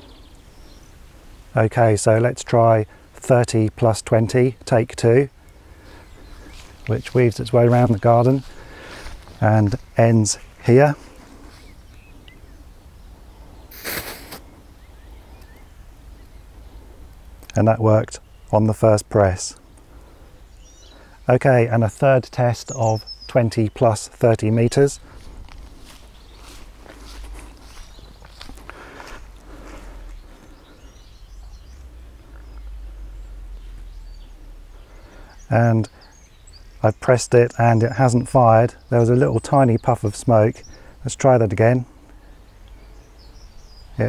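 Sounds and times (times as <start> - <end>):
faint bird chirps: 0.0 - 1.0, 11.5 - 17.1
firework igniter hiss: 13.7 - 14.5.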